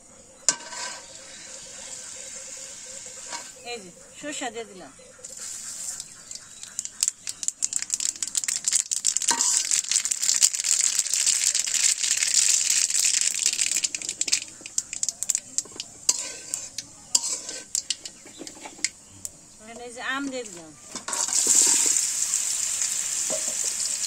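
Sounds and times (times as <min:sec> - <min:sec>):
seeds popping in hot oil: 0:00.5 - 0:03.8, 0:05.2 - 0:24.0
oil sizzling: 0:00.5 - 0:03.9, 0:05.2 - 0:24.0.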